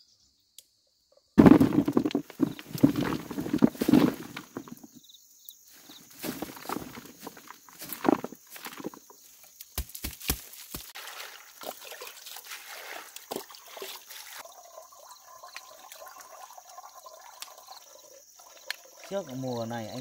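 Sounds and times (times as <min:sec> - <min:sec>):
water pouring and sloshing: 0:01.4 - 0:04.9, 0:05.7 - 0:09.5, 0:10.5 - 0:20.0
roots rustling into basin: 0:01.4 - 0:05.0, 0:05.7 - 0:14.4.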